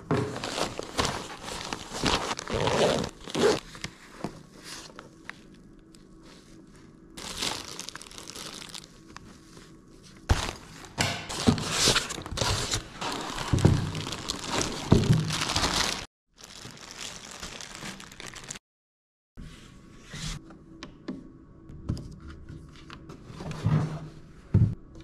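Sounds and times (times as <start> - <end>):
plastic wrapping crinkling: 0.3 - 3.8, 7.2 - 9.3, 10.2 - 18.6
cardboard box rustling: 0.4 - 3.6.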